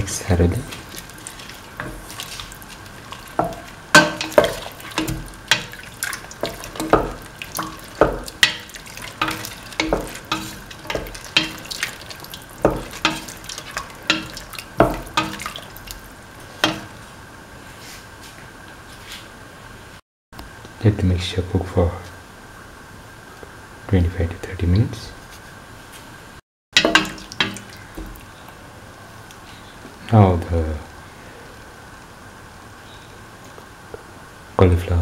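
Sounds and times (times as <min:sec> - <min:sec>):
spoon stirring in metal pan: 0:00.5 - 0:17.0, 0:26.8 - 0:28.3.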